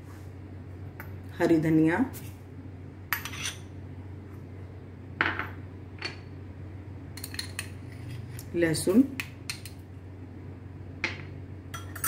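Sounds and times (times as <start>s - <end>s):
steady low hum: 0.0s - 12.0s
clinks against steel bowl: 11.0s - 12.0s.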